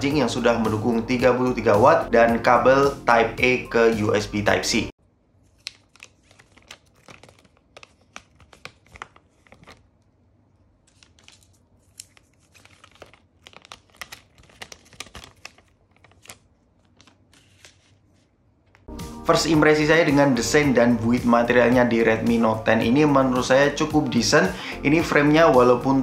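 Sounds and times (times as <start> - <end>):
plastic film crinkling: 5.4 - 10.1, 10.8 - 18.9.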